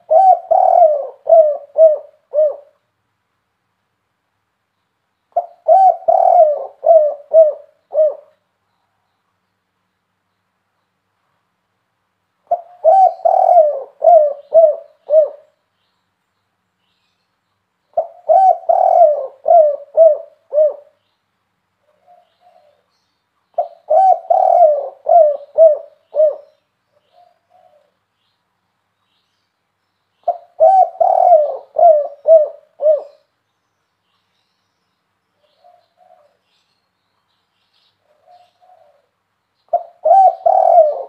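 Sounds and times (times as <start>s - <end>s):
dove cooing: 0.0s - 2.8s, 5.4s - 8.4s, 12.4s - 15.6s, 17.9s - 21.0s, 21.9s - 22.9s, 23.6s - 28.0s, 30.2s - 33.3s, 35.4s - 36.4s, 38.0s - 41.0s.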